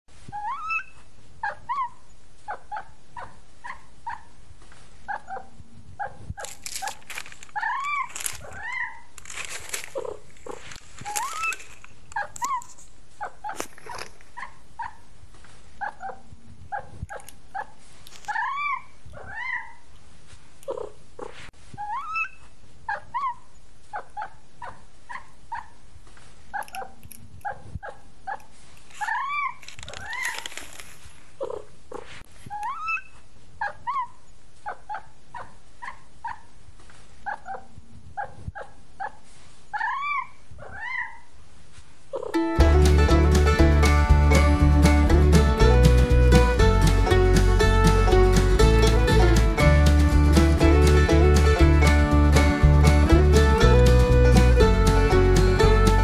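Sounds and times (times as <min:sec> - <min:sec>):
rustling: 0:04.5 - 0:05.2, 0:06.0 - 0:14.6, 0:15.2 - 0:18.6, 0:28.5 - 0:32.6, 0:41.6 - 0:56.0.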